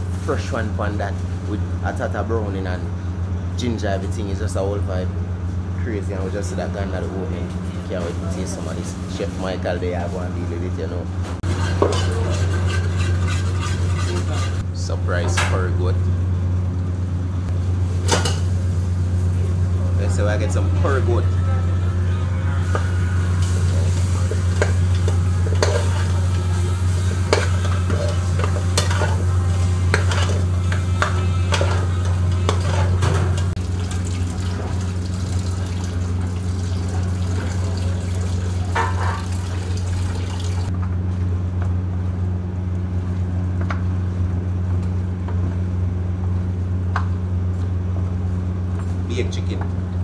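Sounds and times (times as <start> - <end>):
low hum: 0.0 - 50.0
metal spoon scraping in pot: 11.4 - 14.6, 24.5 - 33.1.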